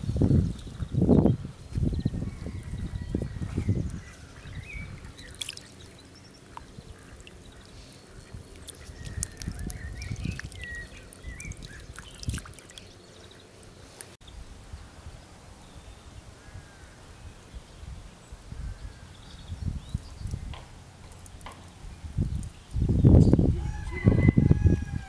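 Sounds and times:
birds chirping: 0.0s - 24.3s
water pouring: 5.2s - 5.8s, 8.5s - 12.9s
fish splashing: 5.2s - 13.0s.

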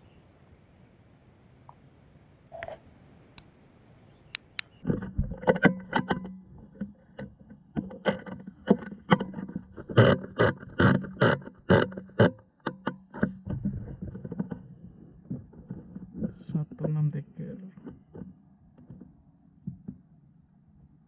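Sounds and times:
faint steady hum: 0.0s - 9.8s
handling knocks and clicks: 4.8s - 20.1s.

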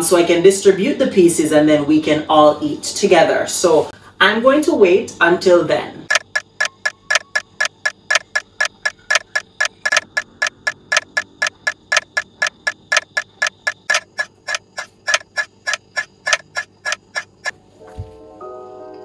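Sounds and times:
clock ticking fast: 6.1s - 17.5s.

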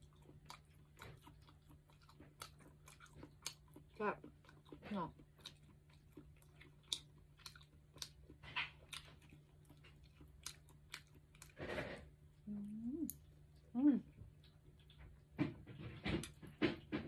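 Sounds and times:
person chewing: 0.0s - 13.7s, 14.3s - 15.3s
person humming: 12.5s - 13.2s.

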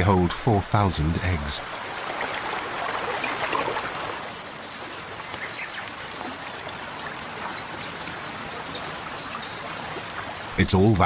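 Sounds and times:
shallow river water running: 0.0s - 11.0s
water splashing: 0.0s - 11.0s
small birds chirping: 1.6s - 10.9s.

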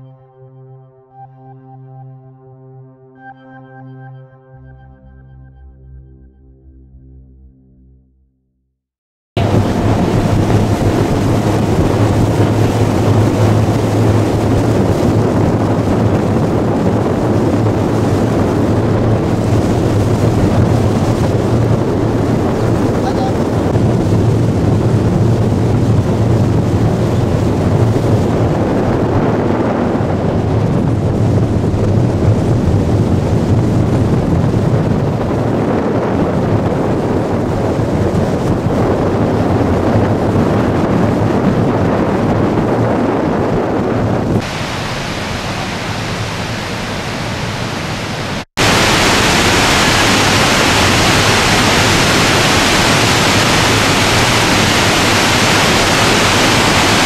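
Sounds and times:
waterfall roar: 9.4s - 28.8s, 44.4s - 57.0s
boat motor running: 9.4s - 47.6s, 48.3s - 57.0s
water rushing along hull: 9.4s - 57.0s.

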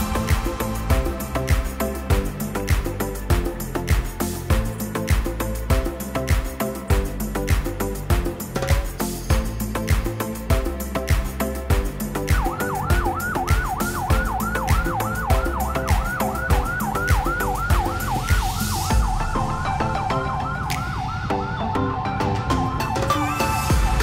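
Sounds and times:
background music with steady beat: 0.0s - 24.0s
electronic yelp siren: 12.3s - 24.0s.

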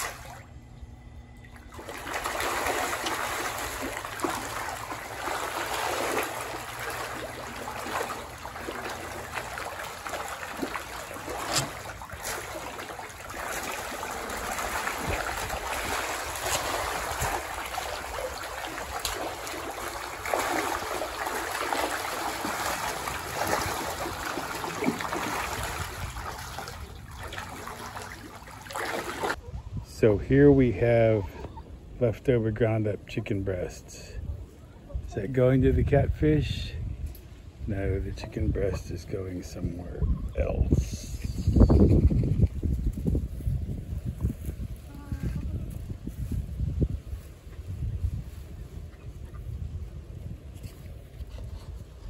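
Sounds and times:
fish splashing at surface: 1.4s - 29.4s.

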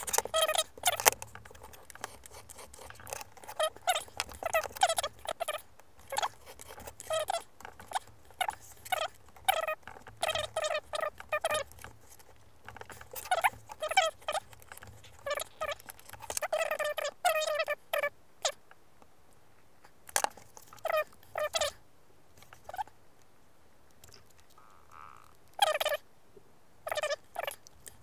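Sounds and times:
hobby knife scratching through card: 0.0s - 5.4s, 6.0s - 12.2s.

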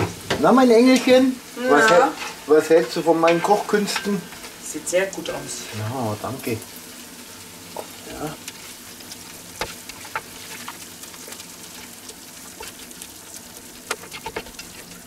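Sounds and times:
oil sizzling in a pot: 0.0s - 15.0s.

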